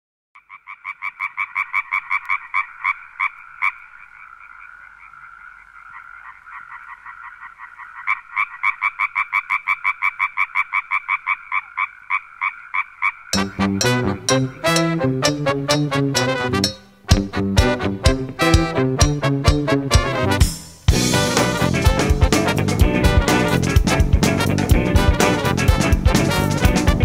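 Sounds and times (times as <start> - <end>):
frog croaking: 0.4 - 14.6.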